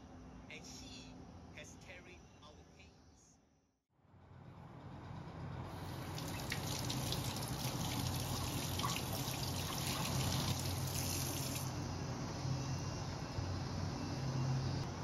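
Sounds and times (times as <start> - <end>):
tap water splashing into sink: 6.1 - 11.6.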